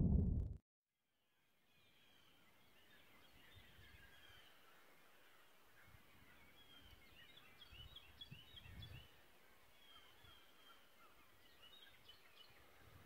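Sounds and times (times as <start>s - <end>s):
soft low rumble: 0.0s - 0.6s
birds chirping and trilling: 1.7s - 13.0s.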